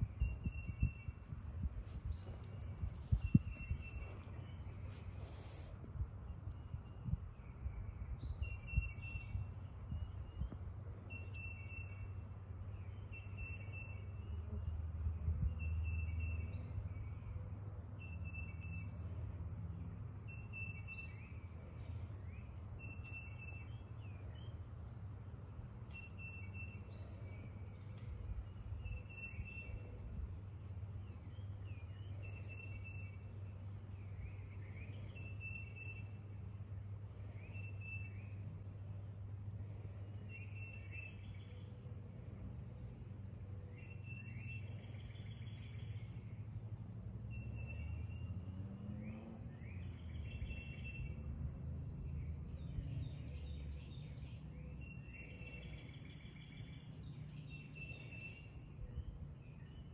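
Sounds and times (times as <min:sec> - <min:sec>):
songbirds singing: 0:00.0 - 0:59.9.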